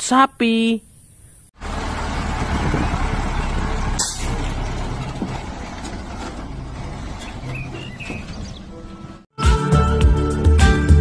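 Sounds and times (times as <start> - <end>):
truck engine running: 1.6 - 9.3.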